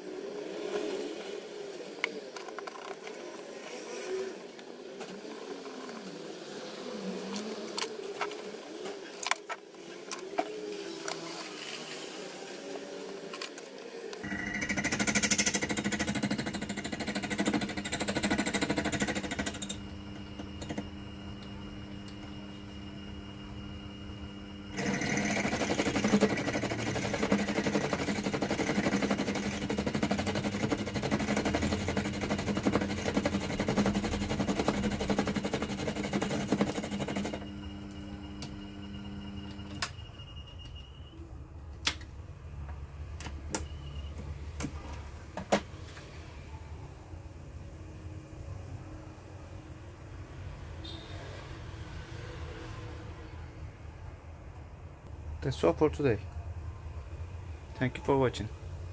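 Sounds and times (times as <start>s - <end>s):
tool cutting metal: 14.2s - 20.9s, 24.7s - 37.6s
lathe motor hum: 14.2s - 39.8s.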